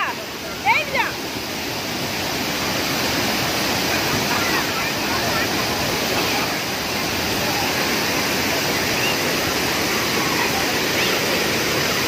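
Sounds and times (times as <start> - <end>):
waterfall rushing onto rock: 0.0 - 12.0.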